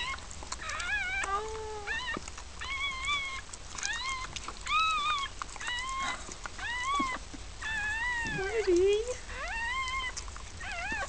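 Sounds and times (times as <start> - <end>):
newborn puppy squealing: 0.0 - 11.0.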